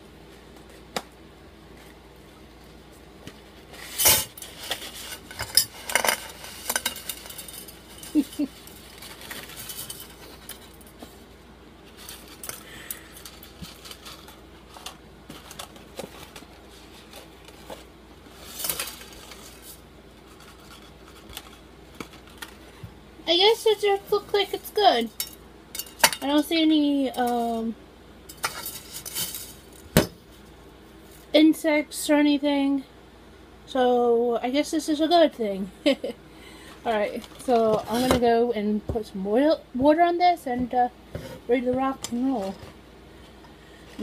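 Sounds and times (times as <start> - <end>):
pasta box rustling: 3.4 - 10.8.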